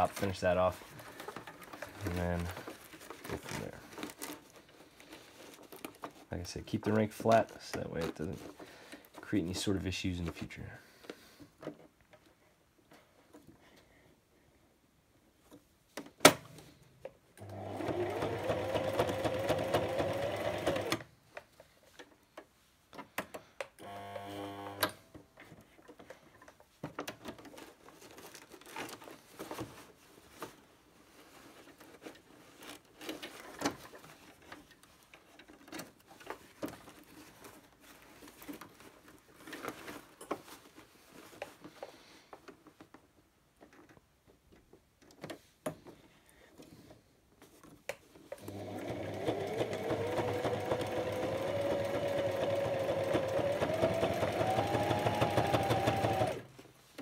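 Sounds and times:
clicks and fabric rustling: 0.0 - 13.8
sewing machine stitching: 17.4 - 21.1, 48.4 - 56.6.

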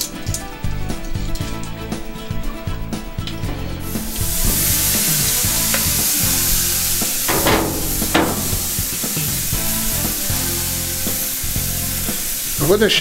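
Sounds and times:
steak sizzling on grill: 3.5 - 13.0.

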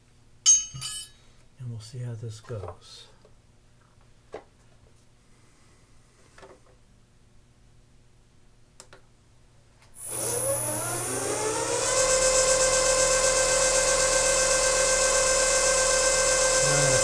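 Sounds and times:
milling machine motor whine: 10.0 - 17.0.

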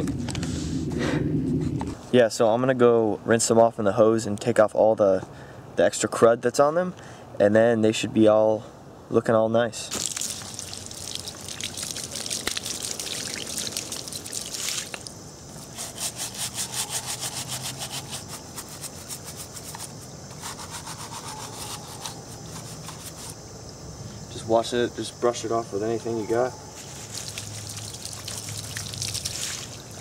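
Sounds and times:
hose water splashing onto concrete: 9.9 - 15.9, 26.8 - 30.0
sponge scrubbing: 15.6 - 23.4.

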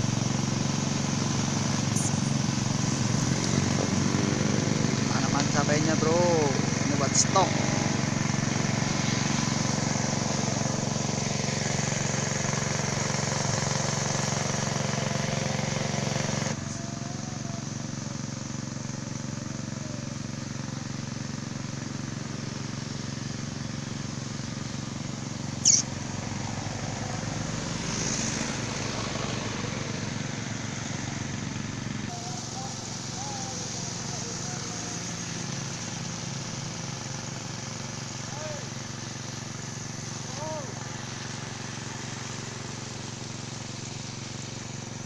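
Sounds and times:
small engine running: 0.0 - 45.0
short high chirp: 1.9 - 2.4, 25.6 - 25.9.

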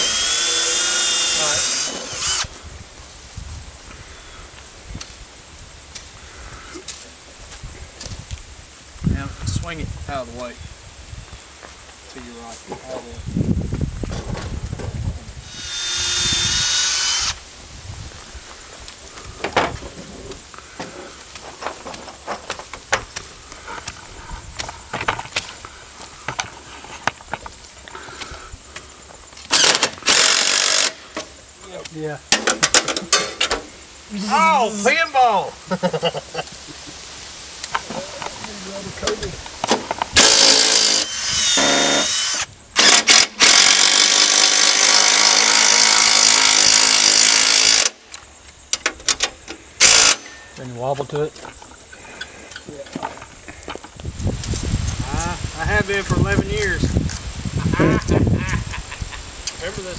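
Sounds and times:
cordless drill driving a screw: 0.0 - 2.5, 15.4 - 17.4, 29.5 - 31.0, 40.2 - 48.0, 49.8 - 50.3.

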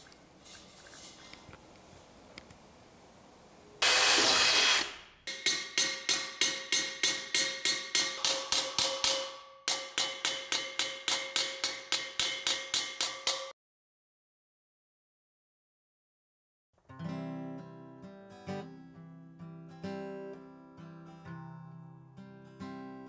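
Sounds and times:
loud burst of noise: 3.8 - 5.1
hammer striking ringing wok: 5.3 - 13.6.

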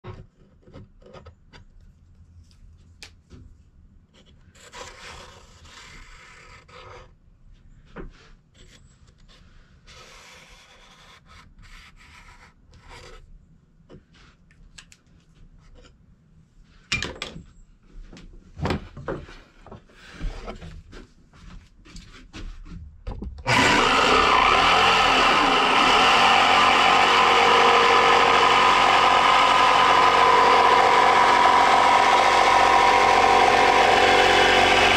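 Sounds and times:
pencil scratching on wood: 4.2 - 7.1, 8.6 - 13.3
electric jigsaw cutting wood: 23.5 - 34.9.

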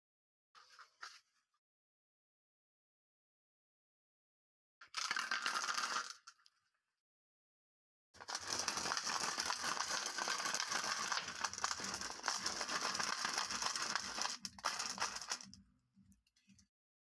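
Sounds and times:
glass marbles rattling in plastic bottle: 4.9 - 6.4, 8.2 - 15.6.

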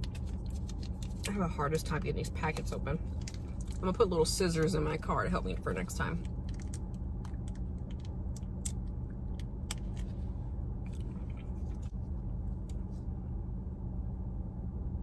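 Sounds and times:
packet crinkling as it is torn: 0.0 - 1.3
steady low hum: 0.0 - 15.0.

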